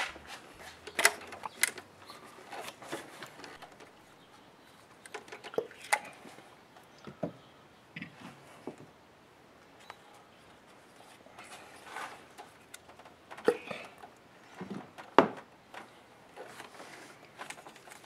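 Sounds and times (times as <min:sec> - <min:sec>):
plastic parts clicking and rustling: 0:00.0 - 0:04.0, 0:04.8 - 0:06.3, 0:11.1 - 0:18.0.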